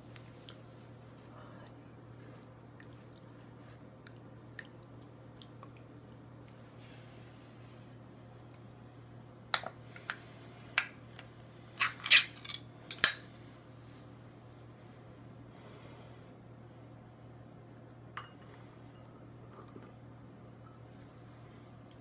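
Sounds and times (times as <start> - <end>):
food cup clicking and crackling: 11.8 - 13.3.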